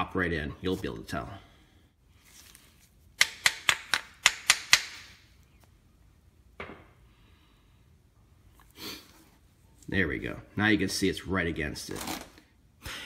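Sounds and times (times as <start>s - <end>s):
sharp metal taps: 3.2s - 5.1s.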